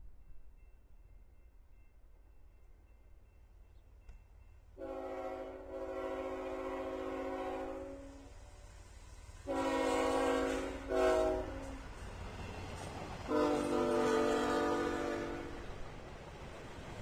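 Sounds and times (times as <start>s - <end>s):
freight train rumbling: 0.0s - 17.0s
locomotive air horn blasts: 4.8s - 8.3s, 9.4s - 11.8s, 13.3s - 15.6s.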